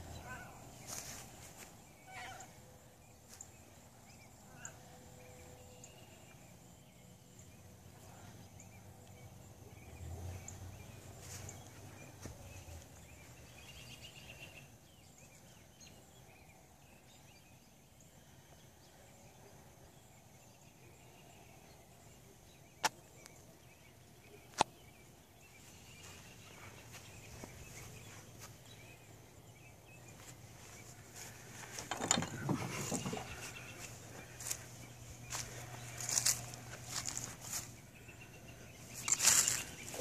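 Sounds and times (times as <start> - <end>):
faint outdoor ambience: 0.0 - 40.0
rustling and shuffling of camera: 0.8 - 1.8, 30.1 - 37.8.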